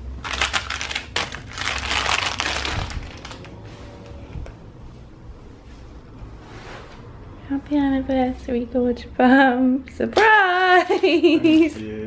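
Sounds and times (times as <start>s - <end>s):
crinkly wrapping crumpled: 0.2s - 3.6s
paper envelope rustling: 0.2s - 3.6s.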